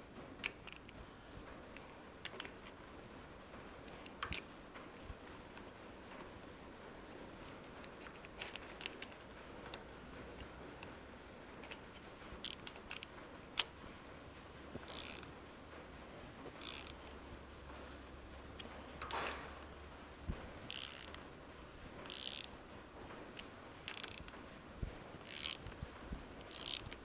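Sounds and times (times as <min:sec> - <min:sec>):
socket ratchet clicking: 0:00.4 - 0:01.0, 0:01.6 - 0:02.8, 0:03.8 - 0:06.2, 0:07.0 - 0:13.8, 0:14.7 - 0:15.4, 0:16.5 - 0:17.2, 0:18.4 - 0:19.6, 0:20.6 - 0:21.4, 0:22.0 - 0:27.0.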